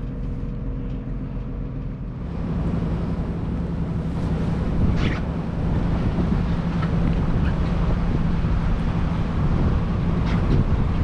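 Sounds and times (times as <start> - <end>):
boat engine hum: 0.0 - 11.0
water rushing past hull: 2.1 - 11.0
wind buffeting microphone: 2.2 - 11.0.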